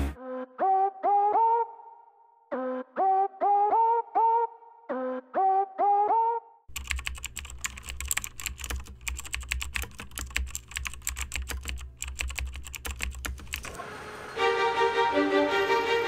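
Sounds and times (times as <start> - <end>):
keyboard typing clicks: 6.7 - 13.8.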